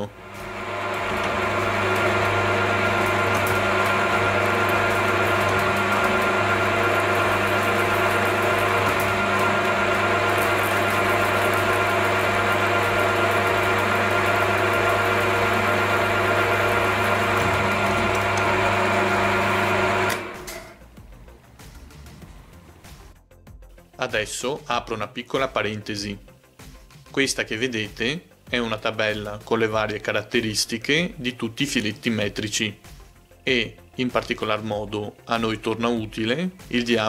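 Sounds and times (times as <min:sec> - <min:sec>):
mill-drill motor humming: 0:00.0 - 0:20.8.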